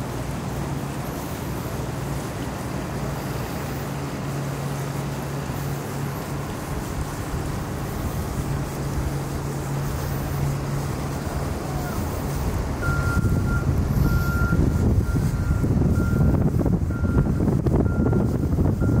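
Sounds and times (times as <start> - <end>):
low engine hum: 0.0 - 19.0
low rumble: 6.4 - 19.0
vehicle reversing alarm beeping: 9.8 - 19.0.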